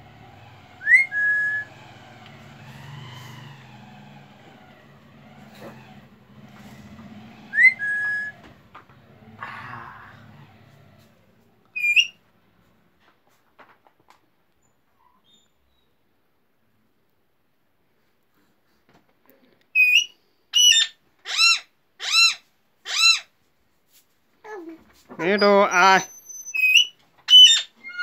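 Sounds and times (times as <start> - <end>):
parrot whistling: 0.8 - 1.8, 7.5 - 8.4, 11.8 - 12.2, 19.8 - 23.2, 25.8 - 28.0.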